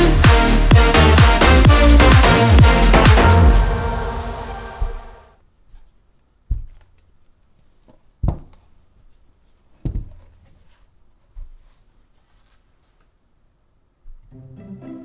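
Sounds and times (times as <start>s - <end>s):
electronic music: 0.0s - 5.3s.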